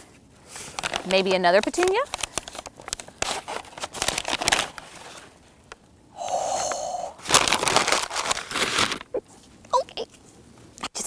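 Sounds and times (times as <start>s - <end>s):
paper crinkling and rustling: 0.0s - 5.8s, 7.2s - 10.4s
sharp paper crackle: 0.5s - 5.6s, 7.2s - 9.5s.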